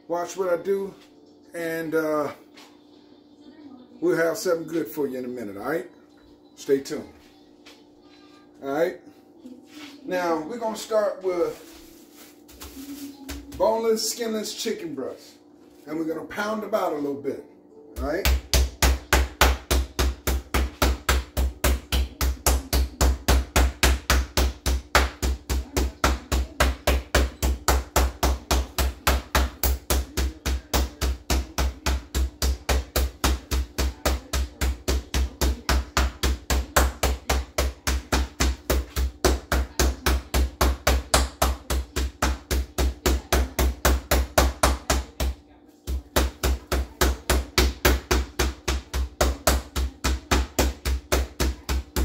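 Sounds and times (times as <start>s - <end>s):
meat pounded on cutting board: 18.0s - 52.0s.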